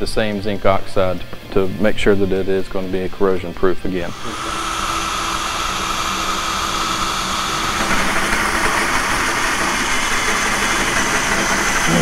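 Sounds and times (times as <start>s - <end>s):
electric drill cutting metal: 4.0s - 12.0s.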